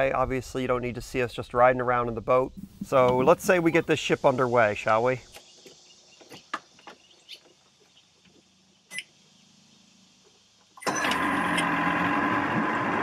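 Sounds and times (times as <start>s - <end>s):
outboard motor running: 2.5s - 3.8s, 10.9s - 13.0s.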